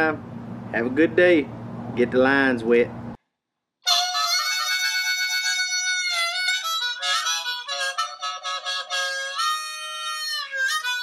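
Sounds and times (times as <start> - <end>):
harmonica music: 3.8 - 11.0.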